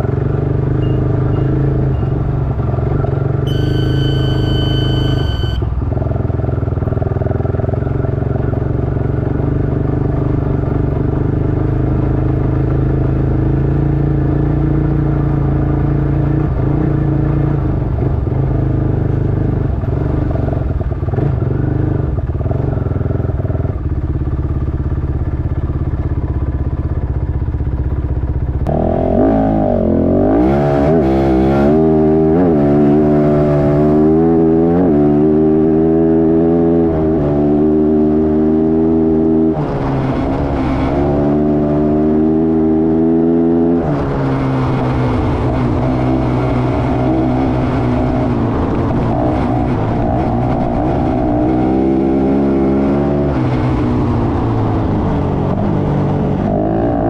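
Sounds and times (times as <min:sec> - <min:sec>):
motorcycle engine running: 0:00.0 - 0:30.3, 0:31.9 - 0:57.0
high electronic beep: 0:00.7 - 0:02.3, 0:03.5 - 0:05.7.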